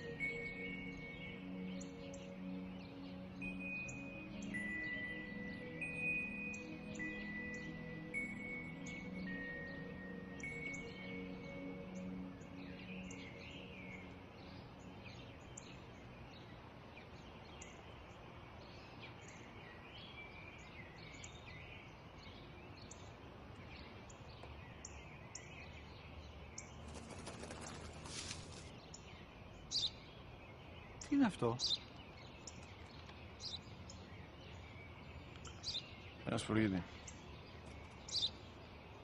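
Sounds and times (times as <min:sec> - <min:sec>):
music tones: 0:00.0 - 0:16.2
small birds chirping: 0:00.0 - 0:39.0
rustle: 0:10.6 - 0:39.0.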